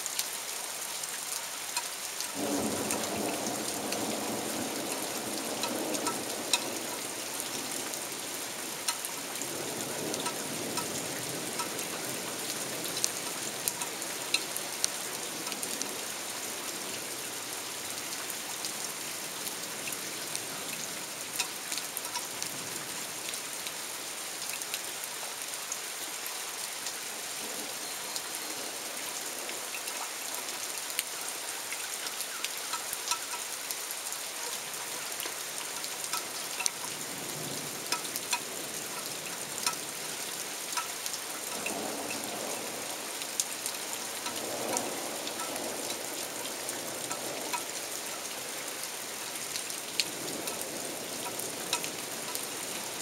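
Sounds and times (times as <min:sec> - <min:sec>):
steady rain falling: 0:00.0 - 0:53.0
raindrops tapping: 0:01.7 - 0:17.3, 0:19.4 - 0:22.6, 0:32.0 - 0:48.4, 0:49.5 - 0:53.0.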